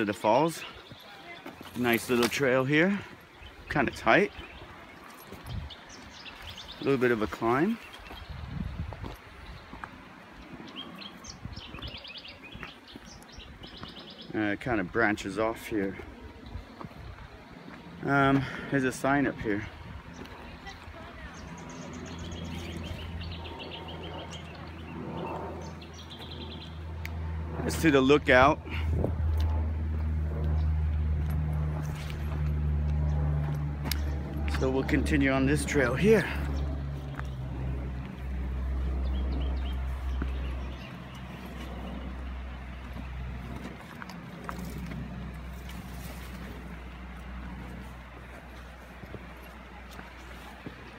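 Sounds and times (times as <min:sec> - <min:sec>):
bird chirping: 0:03.2 - 0:08.8, 0:10.4 - 0:14.4, 0:20.1 - 0:26.9, 0:33.9 - 0:43.2
wind rumbling on microphone: 0:03.2 - 0:15.0, 0:16.0 - 0:18.0, 0:19.3 - 0:35.0.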